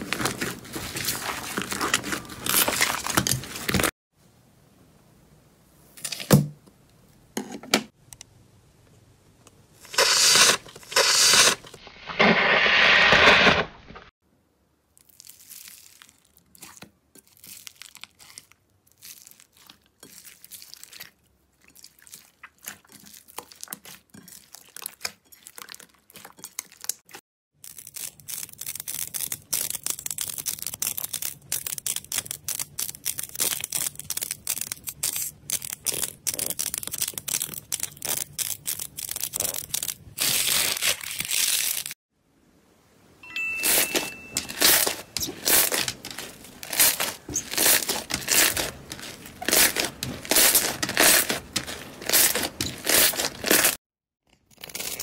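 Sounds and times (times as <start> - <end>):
hands squishing slime: 15.0 - 27.0.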